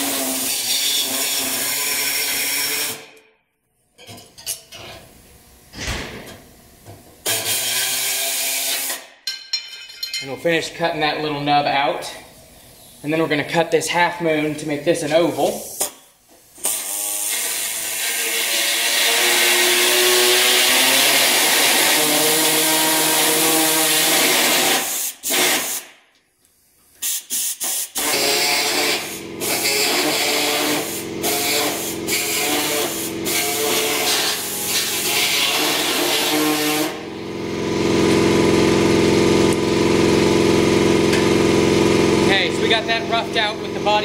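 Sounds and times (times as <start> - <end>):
air saw cutting sheet metal: 0.0 - 3.1, 7.2 - 9.1, 16.6 - 25.9, 27.0 - 37.2.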